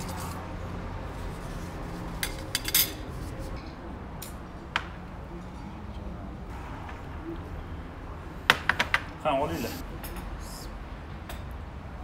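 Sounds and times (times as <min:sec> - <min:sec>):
porcelain and cutlery clinking on glass: 0:02.2 - 0:03.0.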